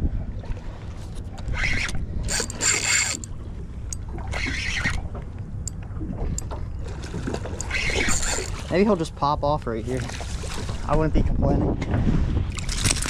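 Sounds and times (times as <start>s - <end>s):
low steady rumble: 0.0s - 13.0s
fishing reel cranking: 1.5s - 5.0s, 7.6s - 8.7s.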